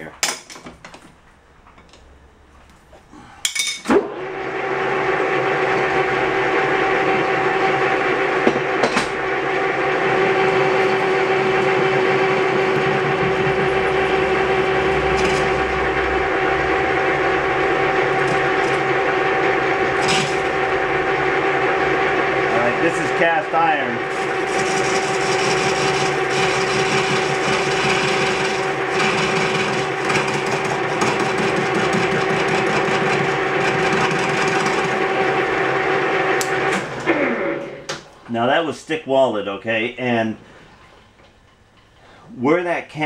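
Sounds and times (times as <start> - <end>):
lathe starting clunks: 3.8 - 38.1
lathe running with gear whine: 4.2 - 37.9.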